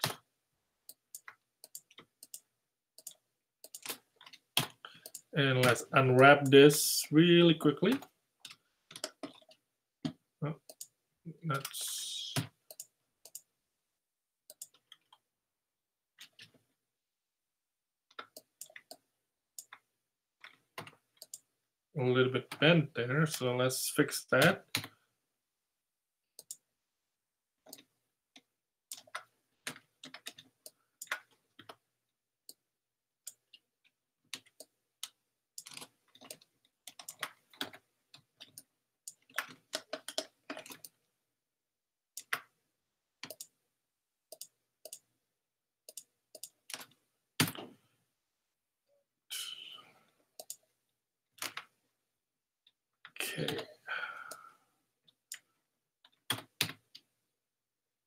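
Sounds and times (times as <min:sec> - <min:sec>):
keyboard typing: 0:00.0 - 0:06.8, 0:07.8 - 0:13.5, 0:14.5 - 0:15.2, 0:18.1 - 0:21.5, 0:27.6 - 0:31.9, 0:34.3 - 0:41.1, 0:42.2 - 0:42.6, 0:43.2 - 0:43.6, 0:44.3 - 0:45.1, 0:45.9 - 0:47.7, 0:50.4 - 0:50.7, 0:51.4 - 0:51.8.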